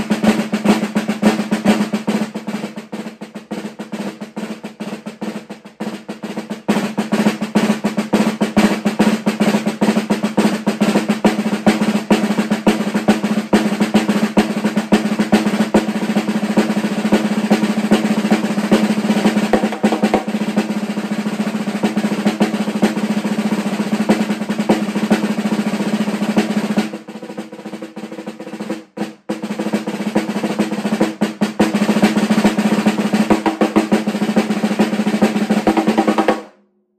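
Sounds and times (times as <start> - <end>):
snare drum solo: 0.0 - 36.6.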